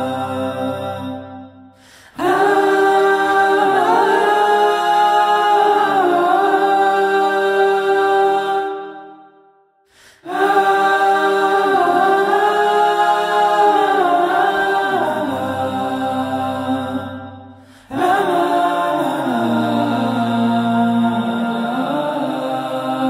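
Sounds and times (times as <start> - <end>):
men singing in harmony: 0.0 - 9.1, 10.2 - 23.0.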